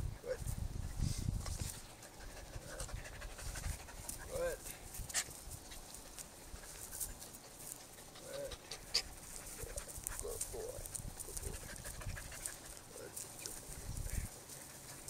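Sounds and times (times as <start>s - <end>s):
dogs panting: 1.6s - 15.0s.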